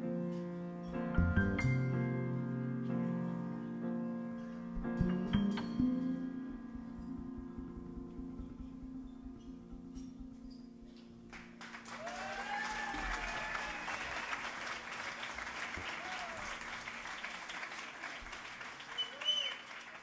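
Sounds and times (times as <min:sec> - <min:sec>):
audience applauding: 0:11.3 - 0:20.0
person cheering: 0:11.9 - 0:14.4, 0:15.9 - 0:16.6.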